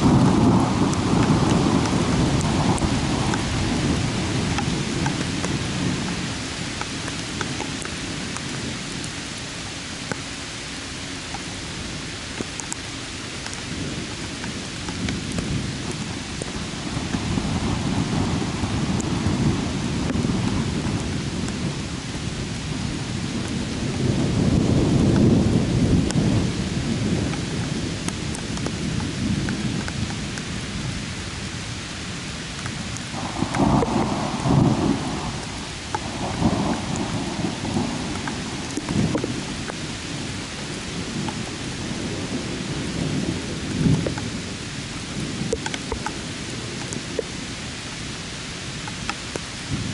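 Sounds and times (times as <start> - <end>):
thunder rolling: 0.0 - 6.2, 14.9 - 30.0, 33.1 - 47.3
heavy rain: 0.0 - 49.9.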